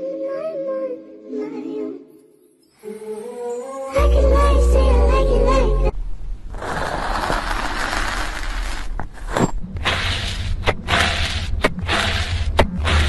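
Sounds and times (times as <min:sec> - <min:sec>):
metal blade scraping sand: 0:06.5 - 0:13.0
hiss: 0:09.8 - 0:13.0.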